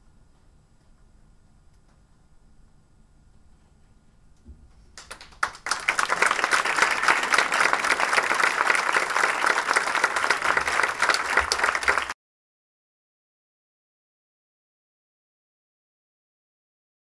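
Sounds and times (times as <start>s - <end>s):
audience applauding: 5.0s - 12.2s.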